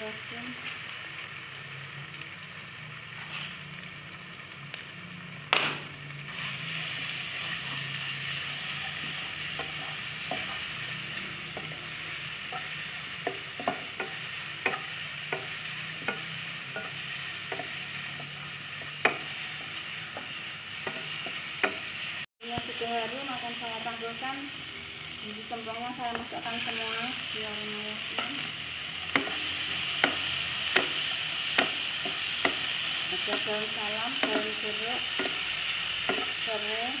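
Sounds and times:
spice paste sizzling in oil: 0:00.0 - 0:37.0
knock on pan: 0:05.5 - 0:05.9
spatula tapping and scraping pan: 0:08.8 - 0:10.9, 0:11.5 - 0:21.9, 0:28.1 - 0:36.4.

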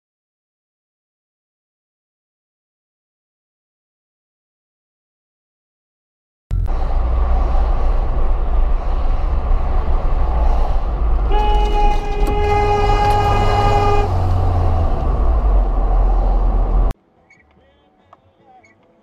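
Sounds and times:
car road and engine rumble: 0:06.5 - 0:17.0
car horn honking: 0:11.0 - 0:15.6.

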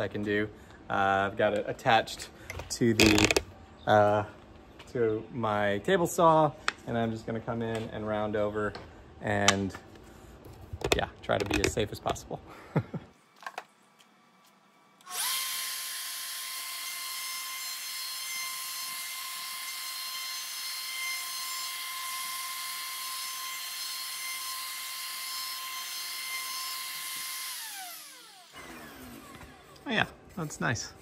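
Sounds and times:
router whining: 0:15.0 - 0:29.9.

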